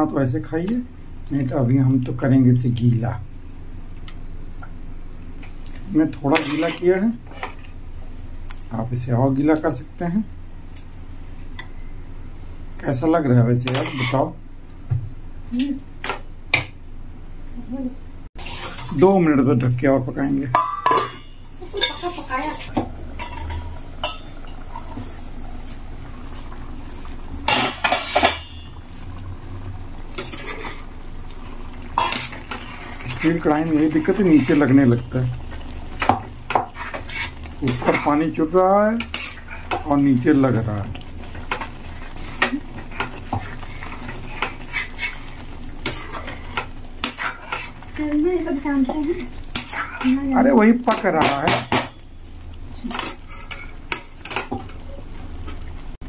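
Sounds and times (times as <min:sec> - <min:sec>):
spoon scraping metal pan: 0:06.3 - 0:08.4, 0:13.6 - 0:14.4, 0:20.5 - 0:25.8, 0:27.4 - 0:29.0, 0:30.1 - 0:30.9, 0:31.9 - 0:40.0, 0:41.3 - 0:52.0
simmering gravy bubbling: 0:22.7 - 0:51.2
metal lid clinking: 0:23.2 - 0:24.6.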